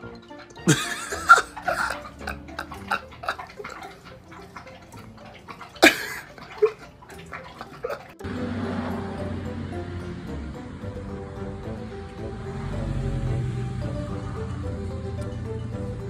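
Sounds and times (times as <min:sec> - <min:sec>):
dog lapping water: 0:00.3 - 0:13.4.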